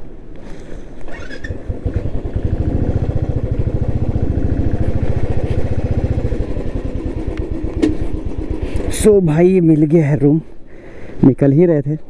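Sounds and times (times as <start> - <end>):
motorcycle engine running: 1.1 - 9.6.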